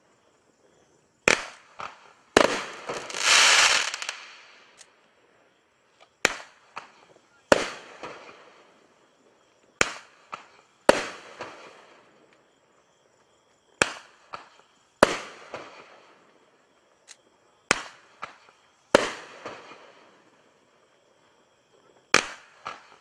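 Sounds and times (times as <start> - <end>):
fireworks bangs: 1.2 - 4.8.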